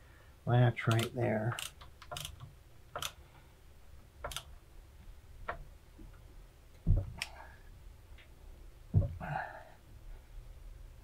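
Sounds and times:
metal terminals clicking: 0:00.8 - 0:03.2, 0:04.2 - 0:04.5
dull knock: 0:08.9 - 0:09.2.

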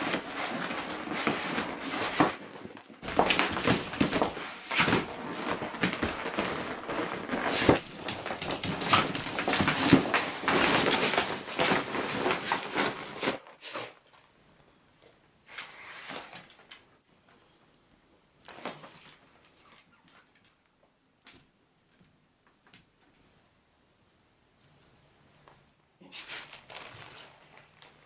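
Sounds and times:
plastic toy rustling and crackling: 0:00.0 - 0:14.5, 0:26.3 - 0:28.0
knocks and thumps on wooden floor: 0:03.0 - 0:11.0.

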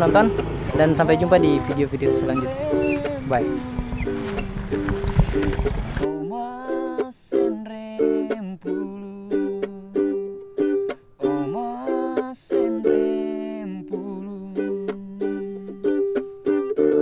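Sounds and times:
held low note: 0:00.0 - 0:05.4
plucked string melody: 0:00.0 - 0:17.0.

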